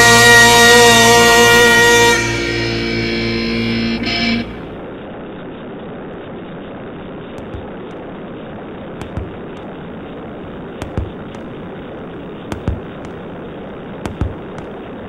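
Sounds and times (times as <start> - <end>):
sharp knocks: 7.4 - 8.0, 9.0 - 9.8, 10.8 - 11.6, 12.5 - 13.3, 14.1 - 14.9
skateboard wheels rolling on asphalt: 7.4 - 15.0.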